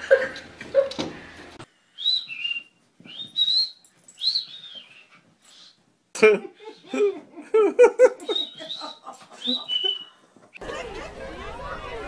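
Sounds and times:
high whistled notes: 2.0s - 5.8s
voice: 10.6s - 12.0s.

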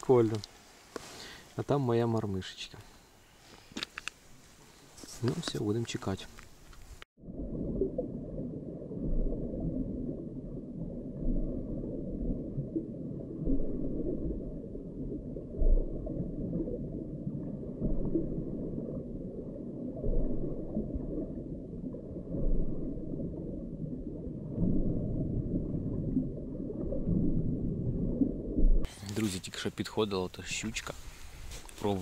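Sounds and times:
muffled underwater rumble: 7.2s - 29.0s.

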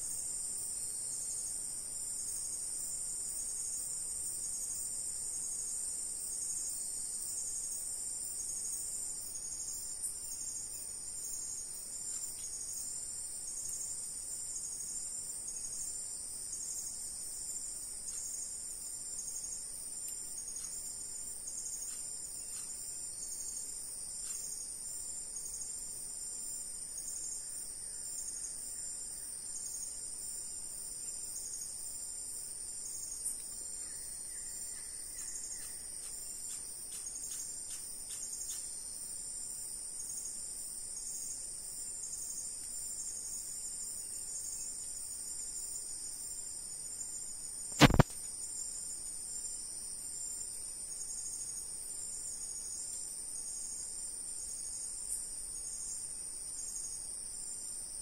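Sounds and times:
insects droning: 0.0s - 58.0s.

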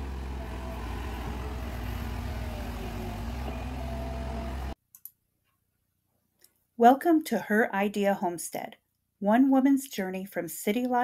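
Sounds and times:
excavator diesel engine droning: 0.0s - 4.8s.

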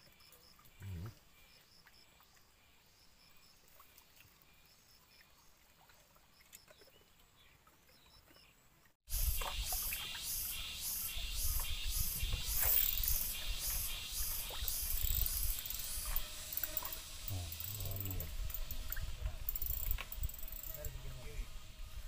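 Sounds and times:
loud pulsing rushing hiss: 9.1s - 19.4s.

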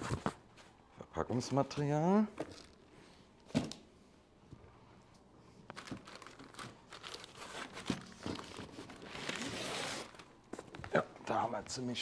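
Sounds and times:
crackles and rustles: 5.6s - 11.0s
packing material crinkling and tearing: 5.7s - 10.4s.

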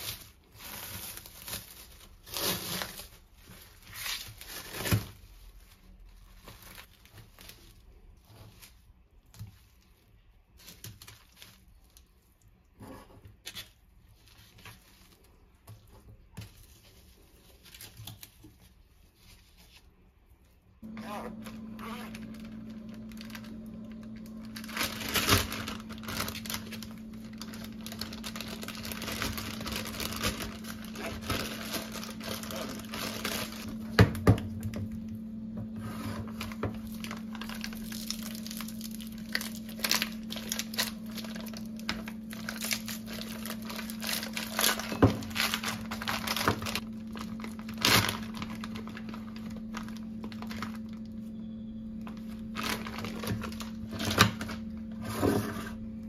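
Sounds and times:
crinkling and rustling: 0.0s - 56.0s
steady low hum: 20.8s - 56.0s.

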